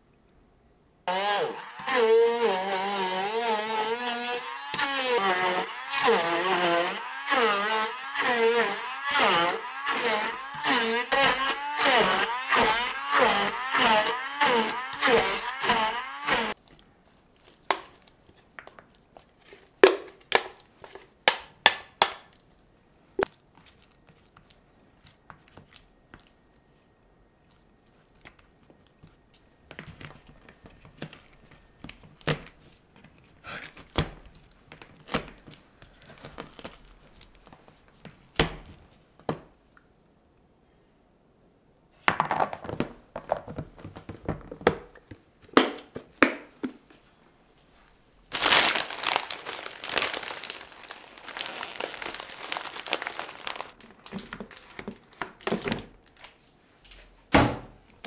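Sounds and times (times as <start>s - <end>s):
plastic containers clicking and knocking: 42.0s - 46.8s.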